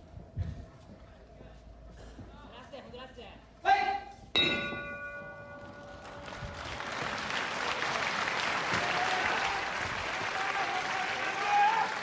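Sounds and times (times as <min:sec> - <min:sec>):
bell ringing: 0:04.4 - 0:06.4
audience applauding: 0:05.8 - 0:12.0.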